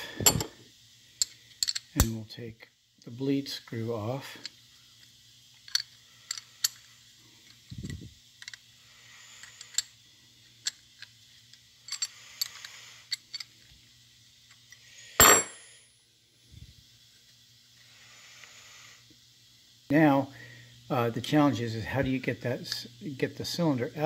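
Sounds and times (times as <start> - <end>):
wrench clicking on metal: 1.2 - 2.2, 5.6 - 6.9, 9.3 - 9.9, 11.8 - 13.5
ringing metal clink: 15.2 - 15.8.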